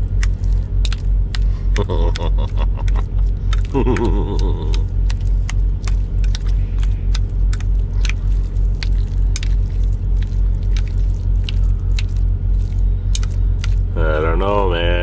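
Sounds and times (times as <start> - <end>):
diesel truck engine idling: 0.0 - 15.0.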